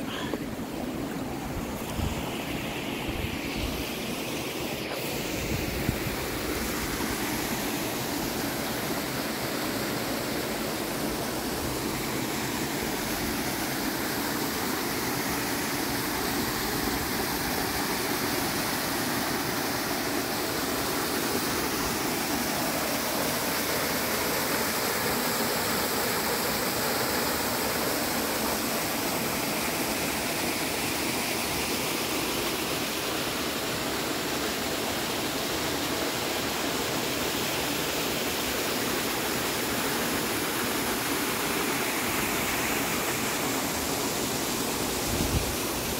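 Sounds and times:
waterfall rushing into pool: 0.0 - 45.9.

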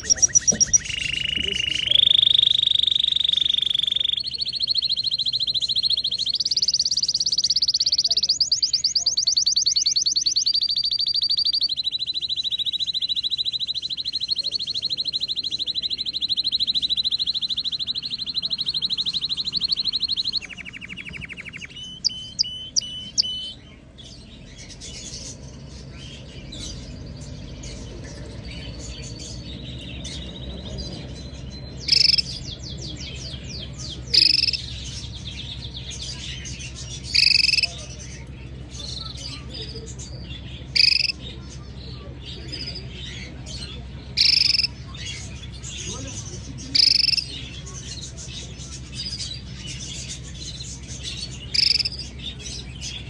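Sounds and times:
canary singing: 0.0 - 53.0.

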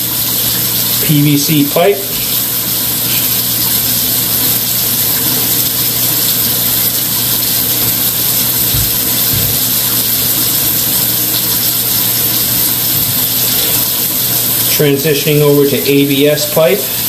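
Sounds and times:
low thumps: 8.7 - 9.8.

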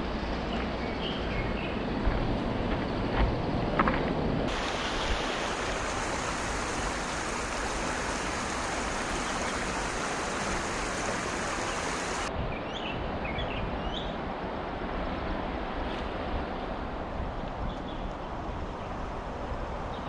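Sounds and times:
river water rushing over stones: 4.5 - 12.3.

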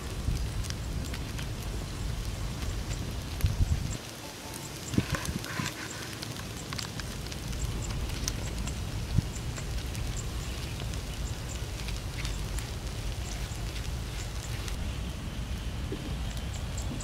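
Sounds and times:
charcoal embers crackling: 0.0 - 17.0
wind rumble on microphone: 0.0 - 17.0.

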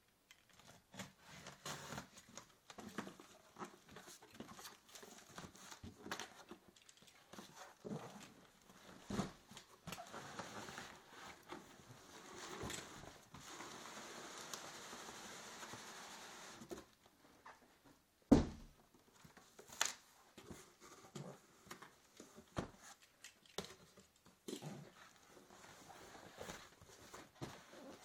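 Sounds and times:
cardboard flaps knocking and rustling: 8.8 - 9.6, 18.3 - 18.8
box thumping on carpet: 18.3 - 18.7.

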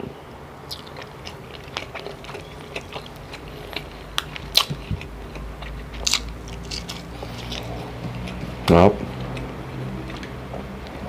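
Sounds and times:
close chewing with wet mouth clicks: 0.7 - 11.0.

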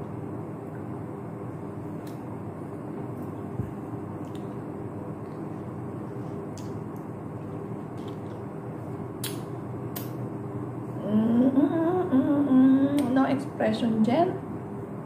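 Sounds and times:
steady low hum: 0.0 - 15.0
woman humming: 11.0 - 13.4.

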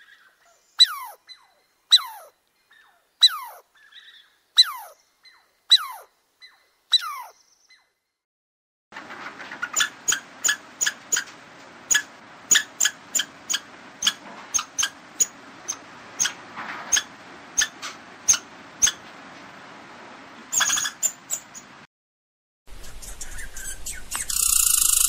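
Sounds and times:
faint outdoor hiss: 0.0 - 8.1, 22.7 - 25.0
squirrel chirping: 0.8 - 7.9, 9.7 - 11.3, 11.9 - 19.0, 20.5 - 21.7, 22.7 - 25.0.

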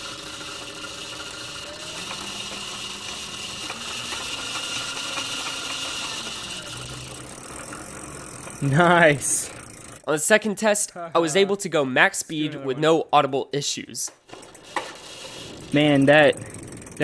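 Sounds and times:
chain and sprocket rattle: 0.0 - 10.1, 14.3 - 17.0
electric motor whirring: 0.0 - 10.1, 14.3 - 17.0.

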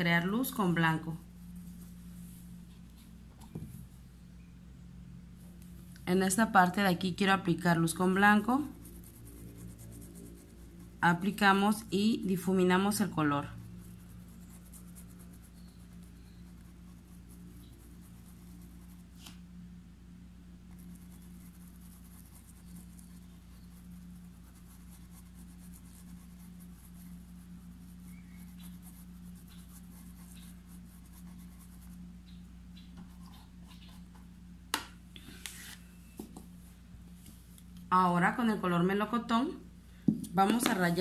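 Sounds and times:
steady low hum: 0.0 - 41.0
paintbrush scratching on fabric: 0.2 - 4.0, 8.0 - 19.4, 20.7 - 32.4.

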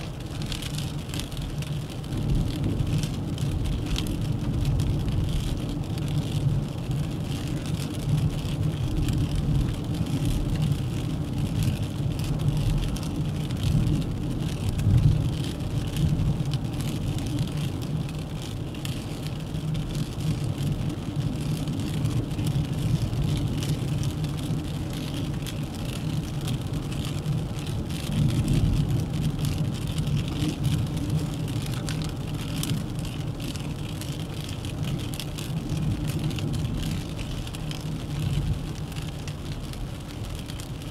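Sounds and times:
car engine and tyre rumble: 0.0 - 40.9.

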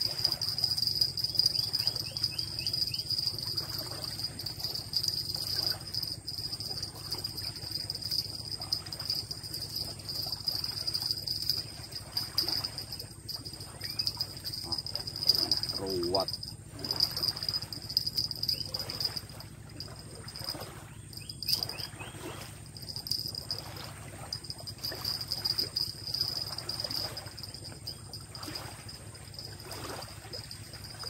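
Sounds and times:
insects droning shrilly: 0.0 - 31.0
low steady hum: 0.0 - 31.0.

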